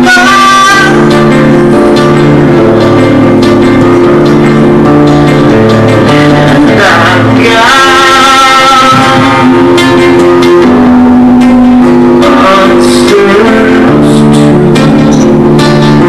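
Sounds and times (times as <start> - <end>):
guitar chords ringing: 0.0 - 16.0.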